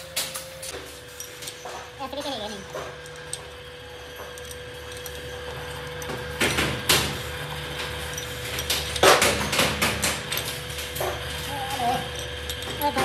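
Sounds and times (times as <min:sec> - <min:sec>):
workshop machinery hum: 0:00.0 - 0:13.0.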